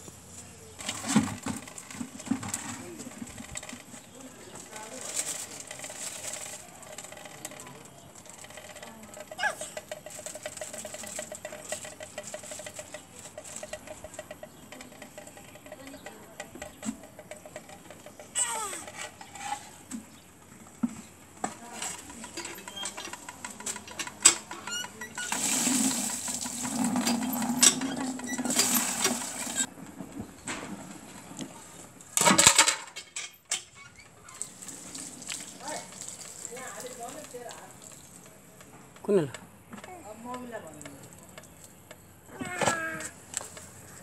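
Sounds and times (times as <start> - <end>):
water gushing from hand pump: 24.7 - 29.7, 34.4 - 38.2.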